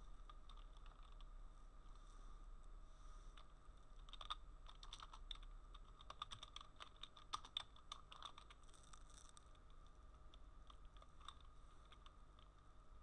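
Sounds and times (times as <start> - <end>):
low steady hum: 0.0 - 13.0
typing on keyboard: 4.0 - 9.3.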